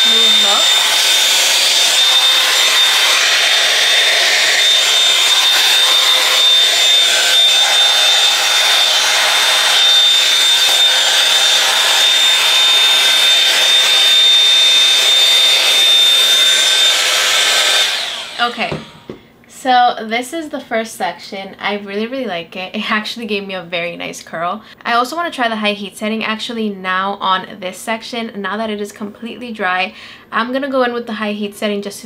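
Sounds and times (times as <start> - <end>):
hot-air brush fan whining: 0.0 - 19.2.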